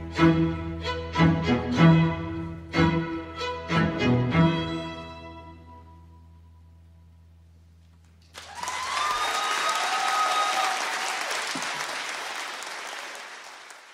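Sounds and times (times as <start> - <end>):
audience applause and cheering: 8.2 - 13.9.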